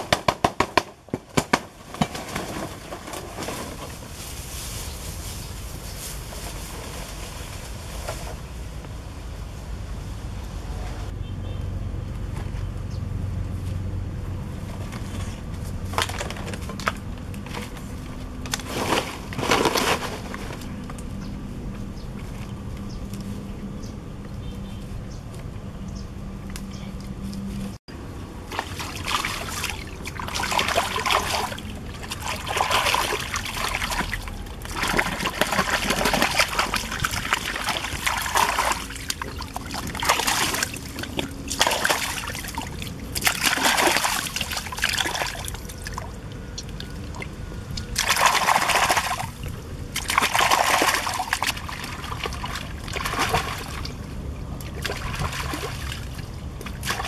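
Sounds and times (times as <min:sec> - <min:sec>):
water splashing and sloshing: 0:14.3 - 0:23.5, 0:26.4 - 0:57.0
stream trickling: 0:28.1 - 0:57.0.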